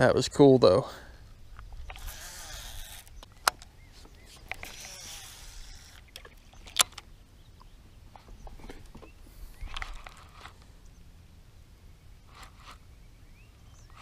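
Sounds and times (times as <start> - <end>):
fishing reel clicks: 1.9 - 3.3, 4.5 - 7.0.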